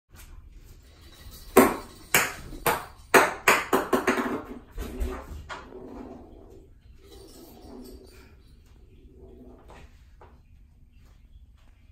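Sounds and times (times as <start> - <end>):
ping pong ball bouncing in bathtub: 1.6 - 4.6.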